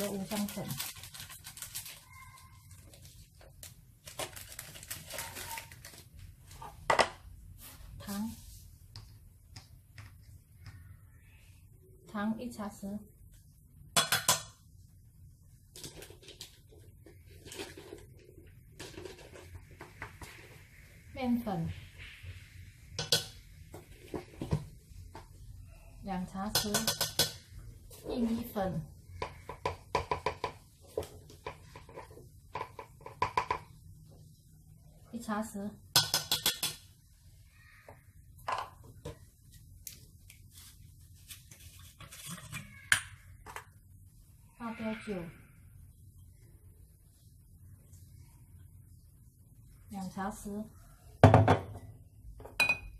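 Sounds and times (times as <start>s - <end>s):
plastic bag rustling: 0.0s - 6.9s
metal spoon tapping steel bowl: 26.5s - 27.4s, 36.0s - 36.8s.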